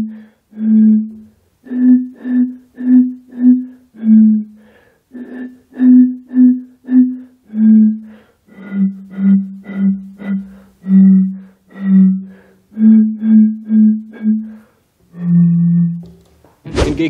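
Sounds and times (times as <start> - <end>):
bottles blown like a bottle organ: 5.2 - 8.1, 8.7 - 16.1.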